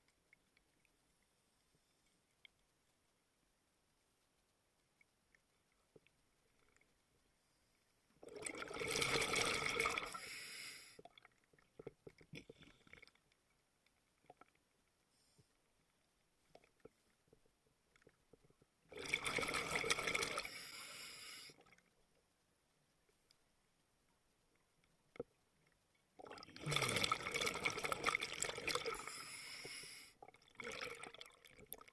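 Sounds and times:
faint clicks and bubble ticks: 0.0s - 10.2s, 11.0s - 20.5s, 21.5s - 29.2s, 30.2s - 31.9s
regulator exhale bubbling: 8.2s - 11.2s, 26.2s - 31.4s.

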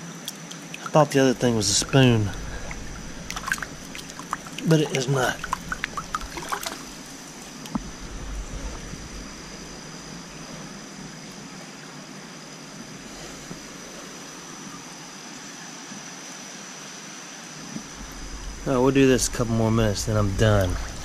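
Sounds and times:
creek water running over rocks: 0.0s - 16.4s, 17.1s - 21.0s
hand splashing in water: 1.4s - 7.5s.

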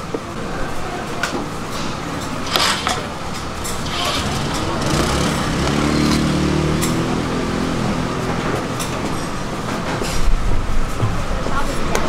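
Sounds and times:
vehicle engine passing: 1.7s - 11.8s.

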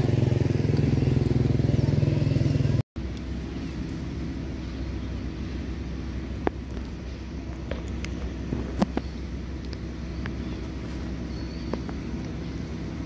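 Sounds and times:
low engine hum: 0.0s - 13.0s.

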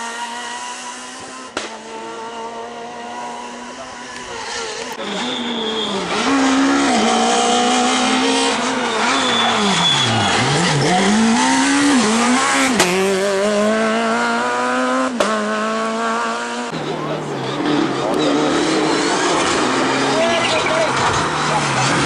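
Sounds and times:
rally car engine revving: 0.0s - 22.0s
tyre squeal: 4.4s - 11.2s.

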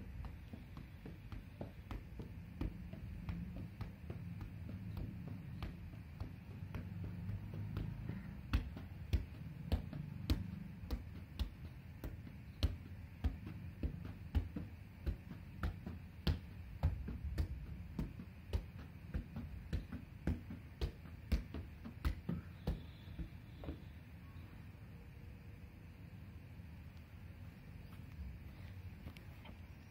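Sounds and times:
soccer ball thudding: 0.0s - 23.9s
low background rumble: 0.0s - 24.3s.

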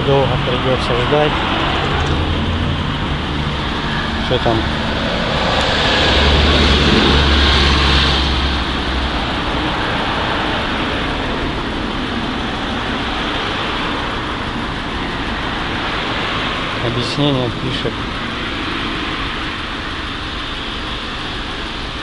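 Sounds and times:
vehicle passing by: 0.0s - 14.4s
hum of passing traffic: 0.0s - 22.0s.

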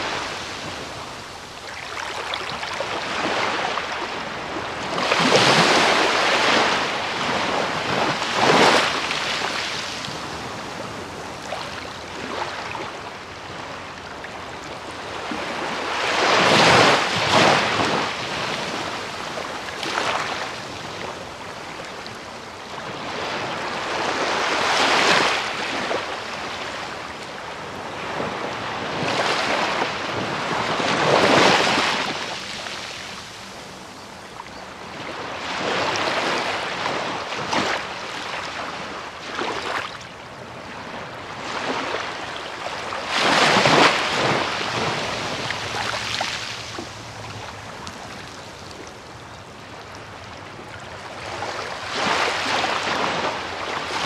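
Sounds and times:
waves breaking on beach: 0.0s - 54.0s.

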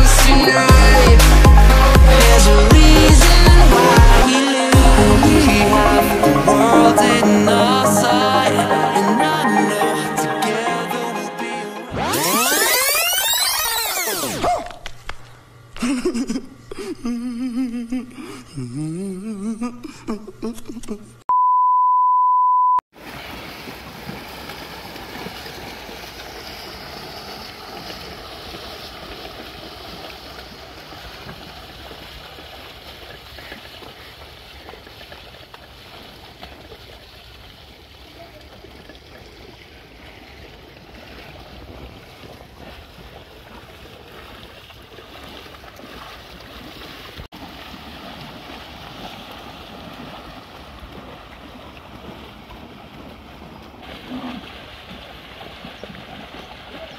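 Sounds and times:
wind: 22.9s - 56.9s
animals wading through water: 23.0s - 56.9s.

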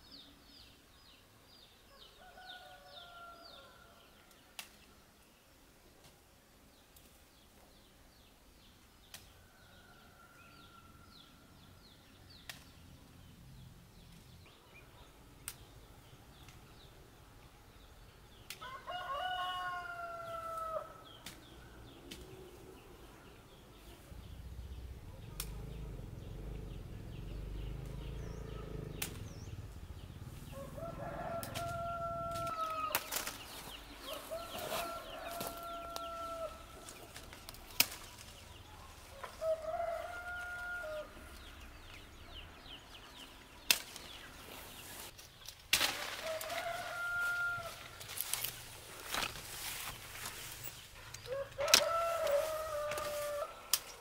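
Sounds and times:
roosters crowing: 1.9s - 4.2s, 18.5s - 23.2s, 25.2s - 45.1s, 46.1s - 54.0s.

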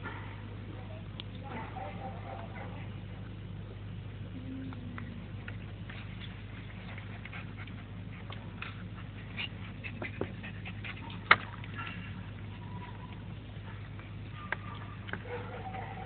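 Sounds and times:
puppy scuffling and playing: 5.0s - 16.0s
dog panting: 6.0s - 13.0s.

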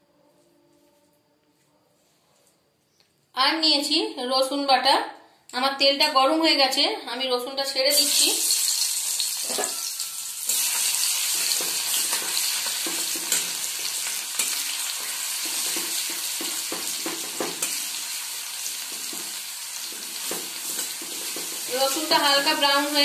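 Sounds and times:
garlic paste sizzling in oil: 7.7s - 23.0s
spatula scraping a pan: 9.4s - 21.7s.

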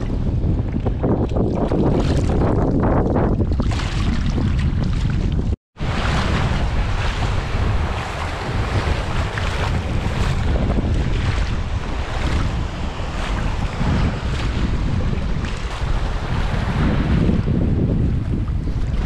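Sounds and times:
wind buffeting microphone: 0.0s - 19.0s
waves breaking over stones: 3.6s - 17.0s.

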